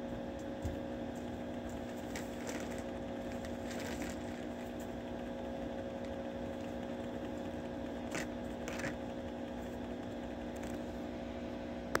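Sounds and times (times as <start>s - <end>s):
machine hum: 0.0s - 12.0s.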